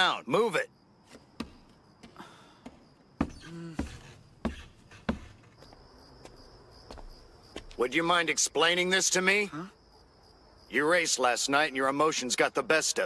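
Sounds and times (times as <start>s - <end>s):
crickets chirping: 0.0s - 13.0s
footsteps on wooden stairs: 1.1s - 7.8s.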